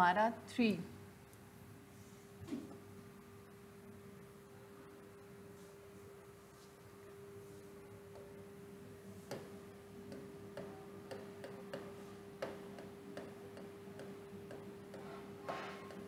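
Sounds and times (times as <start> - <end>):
steady low hum: 0.0 - 16.0
writing taps on a board: 9.3 - 9.5, 10.1 - 16.0.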